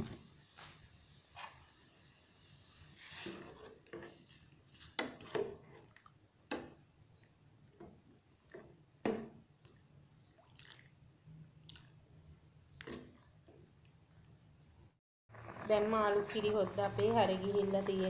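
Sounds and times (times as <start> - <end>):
curry sloshing: 10.3 - 11.0.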